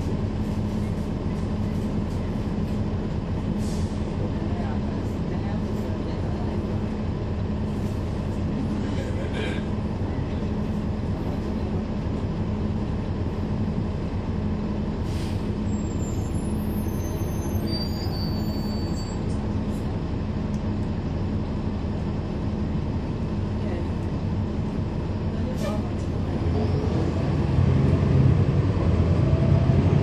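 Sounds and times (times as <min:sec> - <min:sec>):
bus diesel engine drone: 0:00.0 - 0:30.0
short air hiss: 0:15.0 - 0:15.5
faint high squeals: 0:15.7 - 0:19.3.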